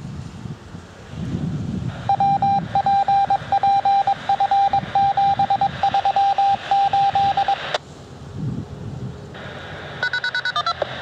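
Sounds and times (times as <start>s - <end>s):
morse code beeps over radio: 2.0s - 7.8s, 10.0s - 11.0s.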